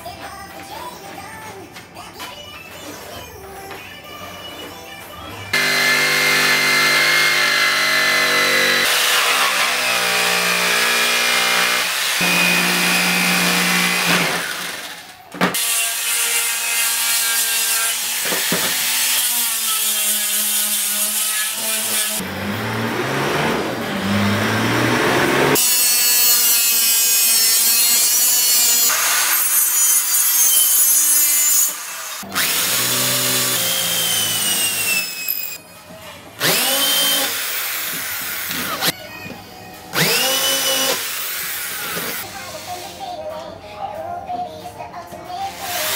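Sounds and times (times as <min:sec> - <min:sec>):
electric jigsaw cutting wood: 0:05.5 - 0:35.6, 0:36.4 - 0:38.9, 0:40.0 - 0:42.2
angle grinder sanding wood: 0:05.6 - 0:14.8, 0:15.5 - 0:35.4
electric drill boring into wood: 0:05.6 - 0:16.0, 0:23.5 - 0:35.6, 0:36.4 - 0:38.9, 0:40.0 - 0:42.2.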